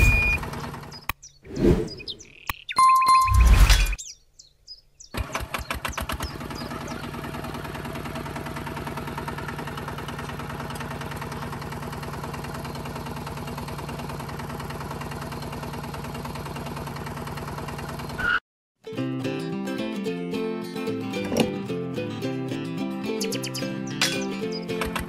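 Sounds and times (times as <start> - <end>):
tractor engine starting and idling: 0.0 - 1.1, 5.0 - 18.3, 24.0 - 25.0.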